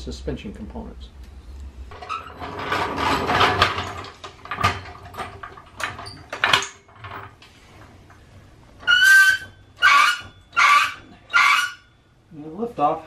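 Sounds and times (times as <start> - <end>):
floor jack clanking and rolling: 1.9 - 8.2, 8.8 - 11.9.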